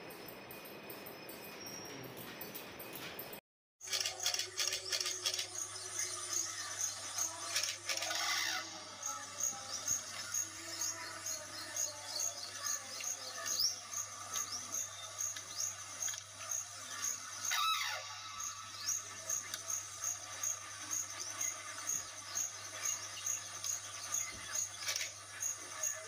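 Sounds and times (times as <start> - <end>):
crane calls: 16.8 - 19.5.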